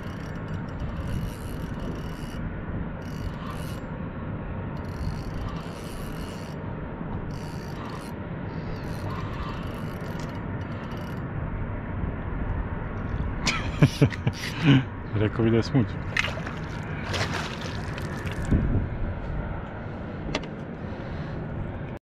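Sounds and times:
fishing reel ratcheting whirr: 0:00.0 - 0:02.4, 0:03.0 - 0:03.9, 0:04.8 - 0:06.6, 0:07.3 - 0:11.2
steady low rumble: 0:06.5 - 0:22.0.

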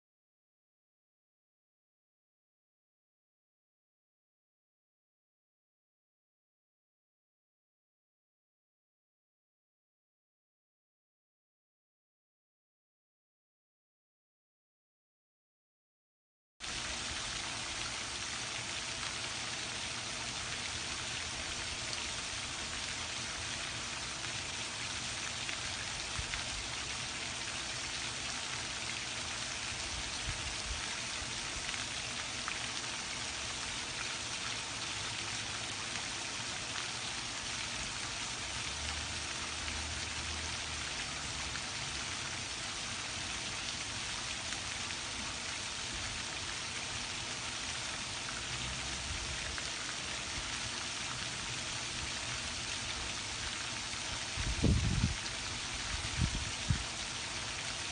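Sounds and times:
hiss of running water: 0:16.6 - 0:57.9.

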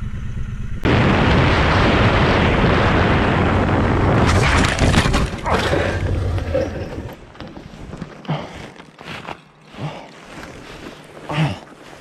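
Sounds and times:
motorcycle crash impacts: 0:04.2 - 0:07.3.

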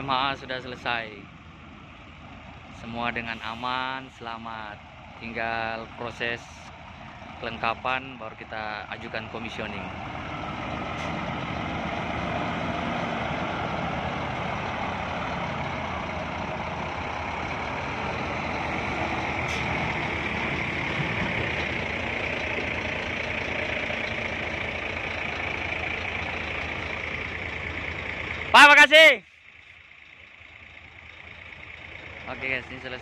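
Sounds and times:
diesel truck engine running: 0:00.0 - 0:33.0.

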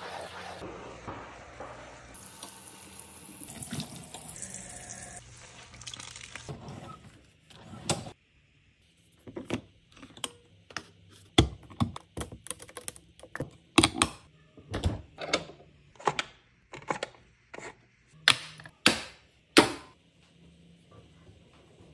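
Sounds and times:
clicks and taps of kitchen fixtures: 0:09.2 - 0:20.0.

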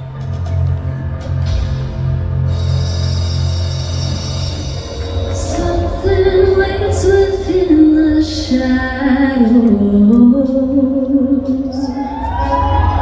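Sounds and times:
band with heavy bass: 0:00.0 - 0:09.0.

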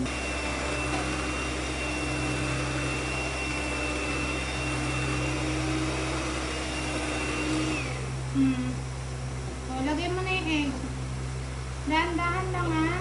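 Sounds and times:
electric mixer whirring: 0:00.0 - 0:08.4.

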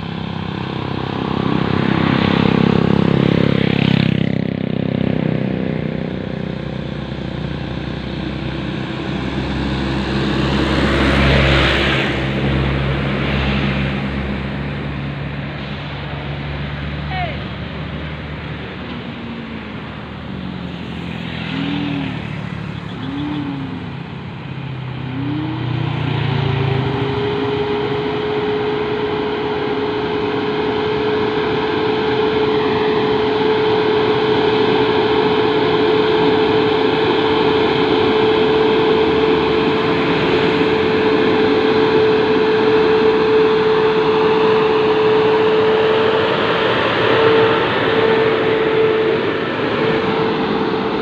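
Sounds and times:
diesel trucks labouring uphill: 0:00.0 - 0:51.0.

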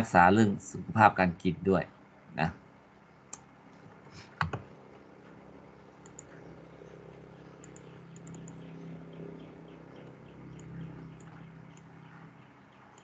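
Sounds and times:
faint low hum: 0:00.0 - 0:13.0
computer clicking: 0:04.4 - 0:04.7, 0:06.0 - 0:08.8, 0:09.9 - 0:13.0.

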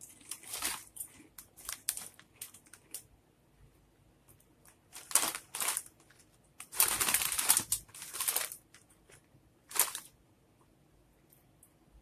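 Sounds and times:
snack bag crinkling: 0:00.0 - 0:03.1, 0:04.9 - 0:08.8, 0:09.7 - 0:10.1.

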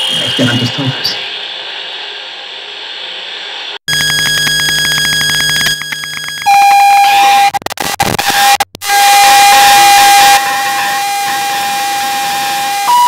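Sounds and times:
loud steady tone over hiss: 0:00.0 - 0:13.0
layered buzzing electronic drone: 0:03.9 - 0:13.0.

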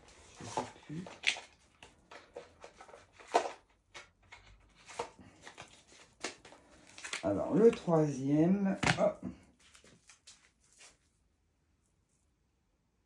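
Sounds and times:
card decks tapping and rustling: 0:00.2 - 0:08.0, 0:08.6 - 0:11.0.

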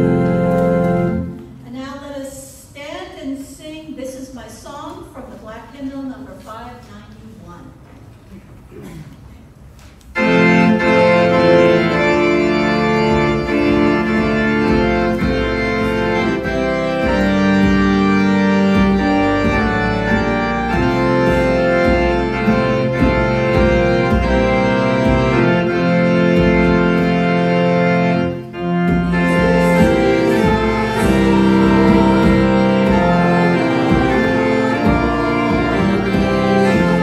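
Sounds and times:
organ playing sustained chords: 0:00.0 - 0:01.6, 0:10.1 - 0:37.0.

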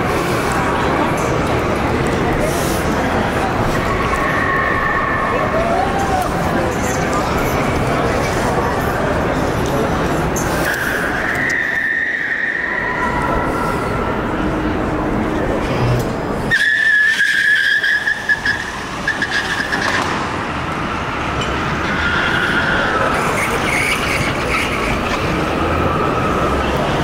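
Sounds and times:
steady background din: 0:00.0 - 0:27.0
car tyres squealing: 0:10.4 - 0:14.4, 0:16.4 - 0:27.0.

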